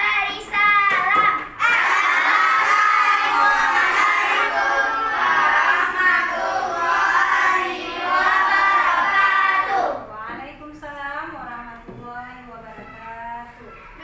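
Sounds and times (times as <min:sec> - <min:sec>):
children singing in unison: 0:01.6 - 0:10.1.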